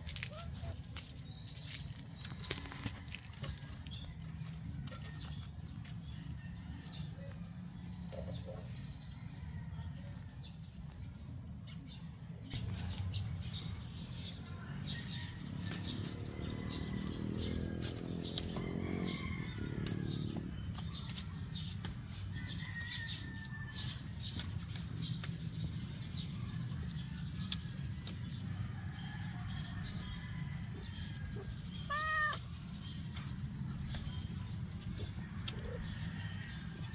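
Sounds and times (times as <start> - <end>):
small birds chirping: 23.9 - 36.8.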